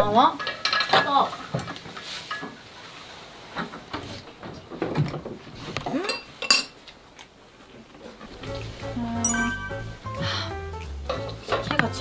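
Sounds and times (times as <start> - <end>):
utensils clinking against ceramic bowls: 9.3 - 10.0.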